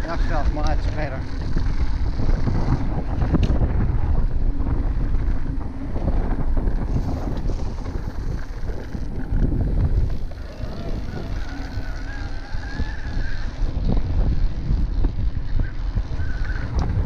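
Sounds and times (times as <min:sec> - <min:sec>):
bike tyres rumbling on dirt: 0:00.0 - 0:17.0
wind buffeting microphone: 0:00.0 - 0:17.0.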